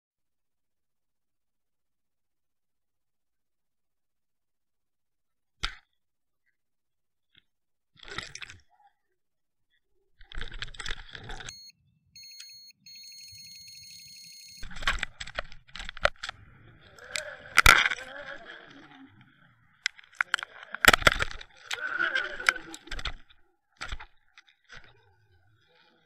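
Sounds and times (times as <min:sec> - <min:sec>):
bite alarm beeping rapidly: 0:11.5 - 0:14.6.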